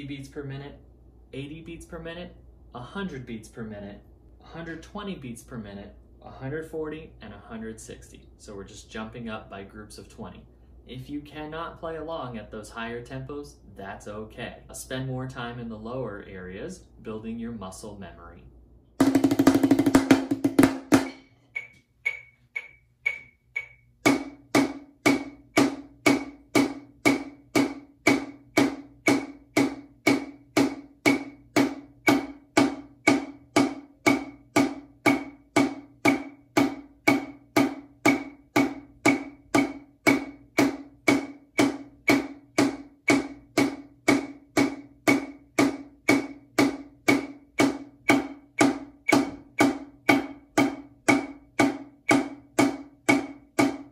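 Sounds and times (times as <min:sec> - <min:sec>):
drumsticks on practice pad: 0:19.0 - 0:53.9
metronome clicks: 0:21.5 - 0:24.0, 0:48.5 - 0:49.7.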